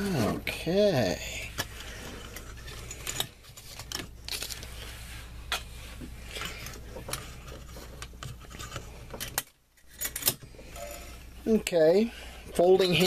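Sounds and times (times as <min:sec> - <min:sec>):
low steady hum: 0:00.0 - 0:13.0
cardboard rustling and scraping: 0:01.7 - 0:09.2.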